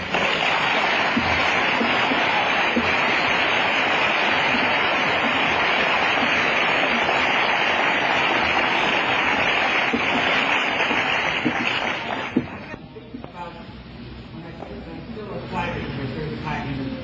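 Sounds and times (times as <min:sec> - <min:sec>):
audience applauding: 0:00.0 - 0:12.8.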